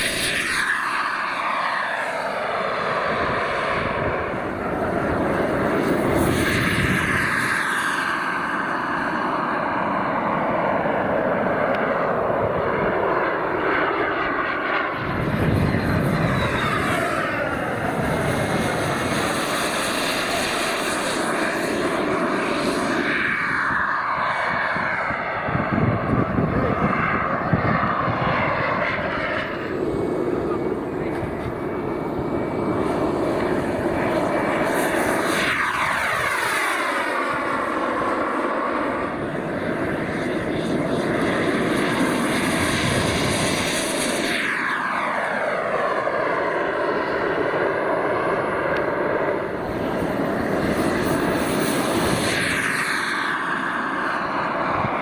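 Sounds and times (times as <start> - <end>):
jet passing by: 0.0 - 55.0
model jet engines whining: 0.0 - 55.0.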